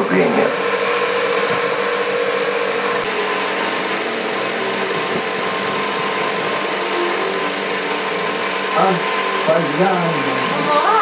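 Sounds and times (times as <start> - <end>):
film projector clattering: 0.0 - 11.0.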